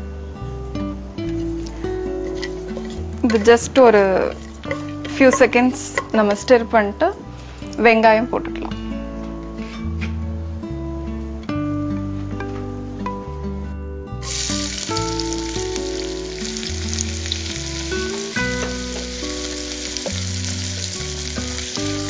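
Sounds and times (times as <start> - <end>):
background music: 0.0 - 22.0
spoon stirring: 2.2 - 6.3
onions sizzling in hot oil: 14.2 - 22.0.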